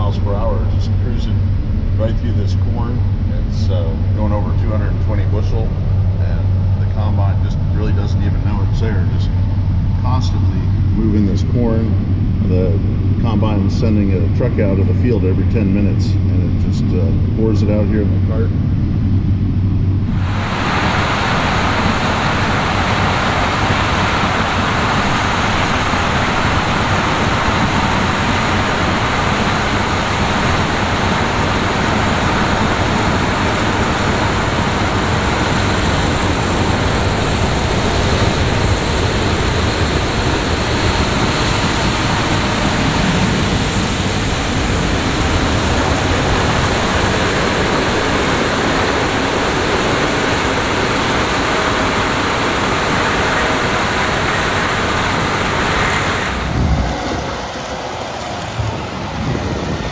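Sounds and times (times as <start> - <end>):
farm machines rushing: 20.1 - 59.9.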